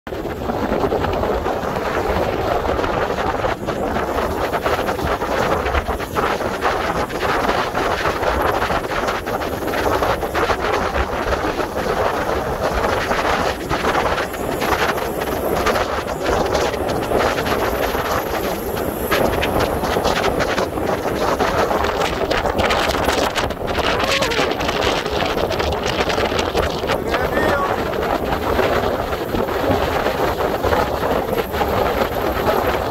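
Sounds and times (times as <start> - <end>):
wind buffeting microphone: 0.1 - 32.9.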